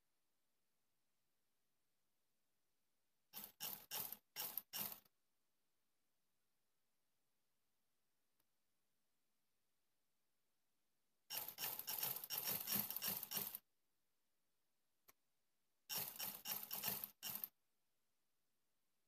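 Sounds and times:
sewing machine clattering: 0:03.4 - 0:05.1, 0:11.3 - 0:13.6, 0:15.9 - 0:17.5.

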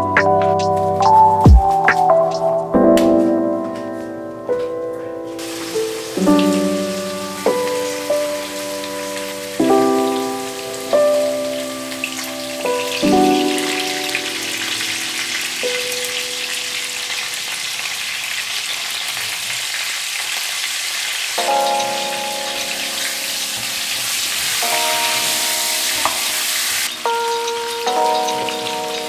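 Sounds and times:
soft background music: 0:00.0 - 0:17.1, 0:21.4 - 0:29.0
meat sizzling in a frying pan: 0:05.4 - 0:11.4, 0:12.1 - 0:29.0.

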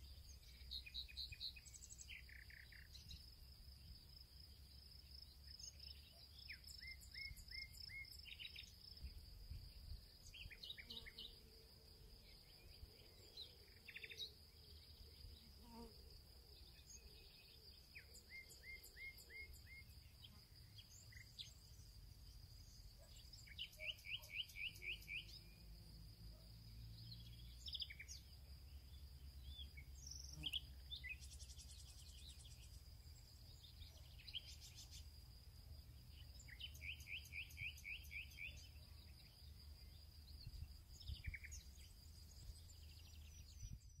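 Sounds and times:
faint birdsong chirps: 0:00.0 - 0:44.0.

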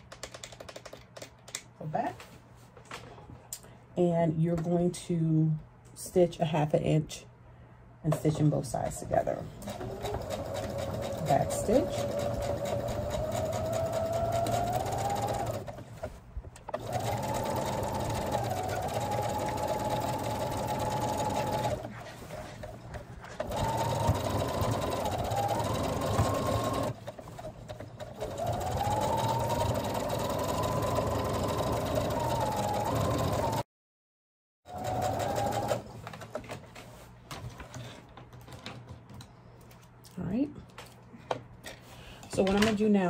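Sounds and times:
sewing machine motor whine: 0:09.7 - 0:15.7, 0:16.7 - 0:21.9, 0:23.4 - 0:27.4, 0:28.0 - 0:33.6, 0:34.7 - 0:35.8.

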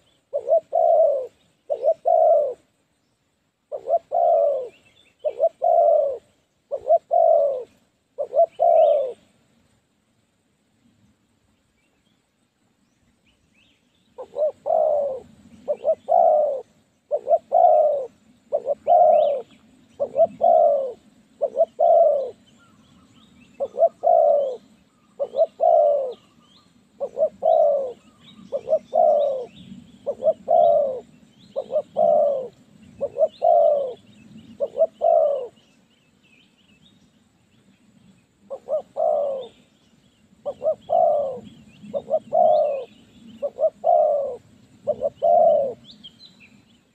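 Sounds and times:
doves cooing: 0:00.0 - 0:02.8, 0:03.7 - 0:09.4, 0:14.2 - 0:35.8, 0:38.4 - 0:39.8, 0:40.4 - 0:46.0.

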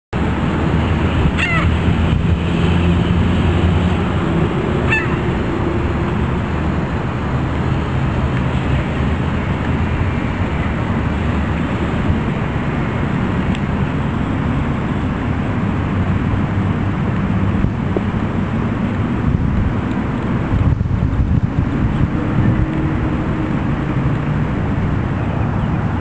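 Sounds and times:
low mechanical hum and rumble: 0:00.2 - 0:26.0
bird calls: 0:01.3 - 0:01.8, 0:04.7 - 0:05.6.

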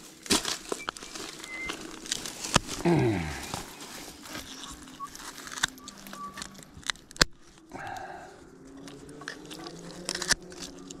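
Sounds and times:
shears snipping through bones: 0:00.0 - 0:03.7, 0:04.3 - 0:07.7, 0:08.7 - 0:11.0
distant motorcycle engines: 0:07.4 - 0:11.0.

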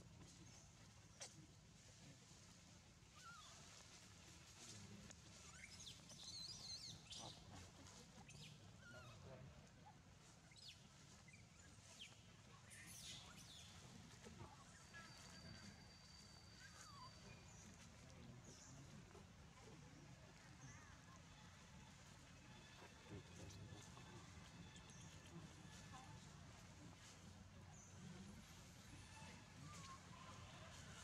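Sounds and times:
high chirps and squeaky calls: 0:14.7 - 0:17.5.

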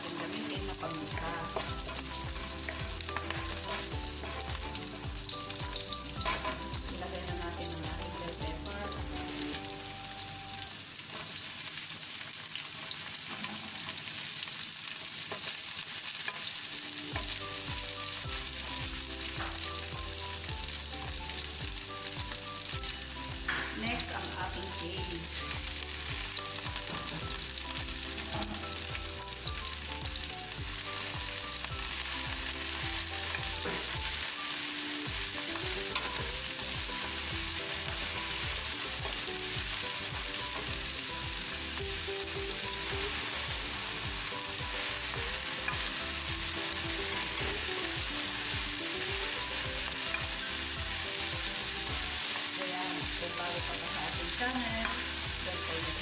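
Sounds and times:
wooden spatula stirring in wok: 0:00.0 - 0:09.7, 0:22.6 - 0:56.0
vegetables sizzling in oil: 0:00.0 - 0:56.0.

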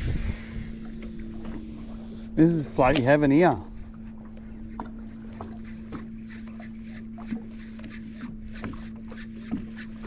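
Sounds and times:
electric trolling motor humming: 0:00.0 - 0:10.0
water tapping against hull: 0:00.8 - 0:10.0
light clicks: 0:02.8 - 0:03.1.

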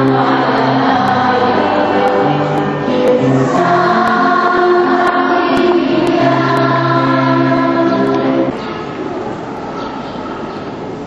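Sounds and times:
choir singing a hymn: 0:00.0 - 0:08.6.

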